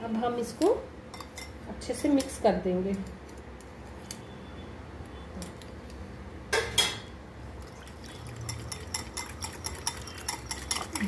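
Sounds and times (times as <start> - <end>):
whisk stirring in glass bowl: 7.6 - 11.0
whisk clinking against glass bowl: 8.0 - 11.0.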